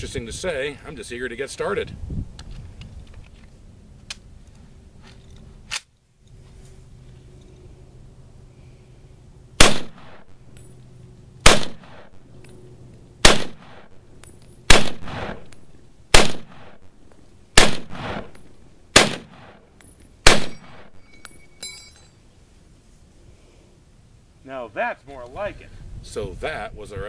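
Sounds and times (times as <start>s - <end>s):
rifle shots echoing: 9.6s - 10.4s, 11.4s - 12.3s, 13.2s - 14.0s, 14.7s - 16.9s, 17.6s - 21.0s
metallic clip ping: 19.8s - 22.2s.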